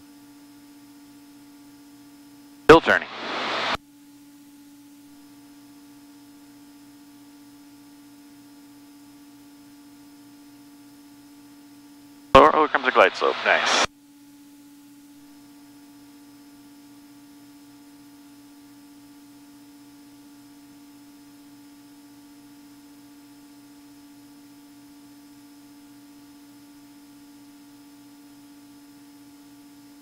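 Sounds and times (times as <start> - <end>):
faint electrical hum: 0.2 - 30.0
faint regular pulsing: 12.4 - 13.9.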